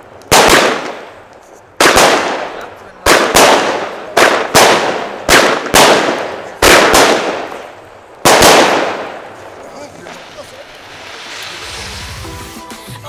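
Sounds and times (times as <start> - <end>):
firework bangs: 0.0 - 12.6.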